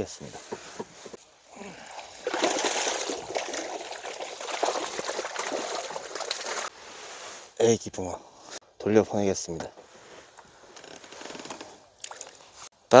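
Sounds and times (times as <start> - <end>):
water streaming out of a net: 1.9 - 6.7.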